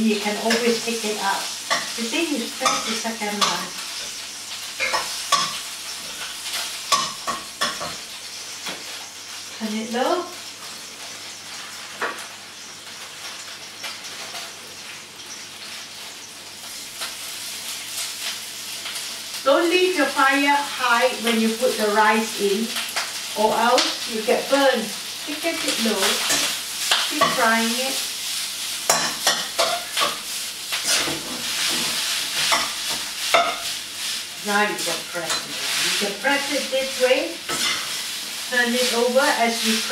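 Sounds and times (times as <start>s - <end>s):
food sizzling in a wok: 0.0s - 39.9s
metal spatula scraping pan: 1.7s - 3.7s, 30.8s - 33.7s.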